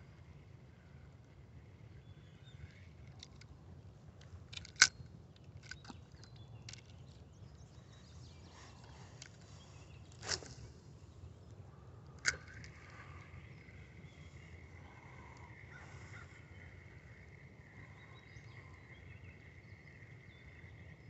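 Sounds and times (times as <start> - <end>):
low steady rumble: 0.0 - 21.0
fishing rod handling clicks: 4.5 - 7.0, 10.1 - 10.7, 12.0 - 13.1.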